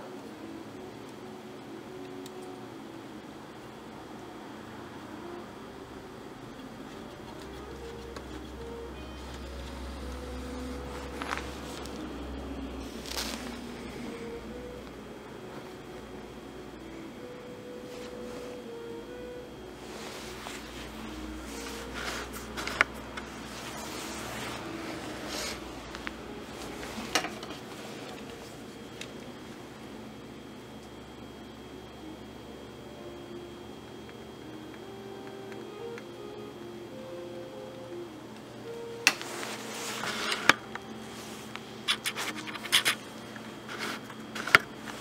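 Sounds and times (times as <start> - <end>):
handling rustling: 9.2 - 14.8.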